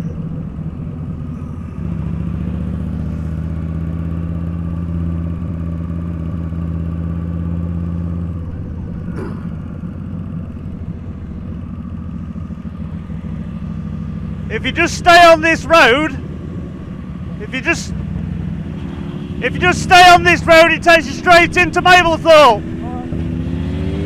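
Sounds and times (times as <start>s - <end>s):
motorcycle engine running: 0.0s - 24.0s.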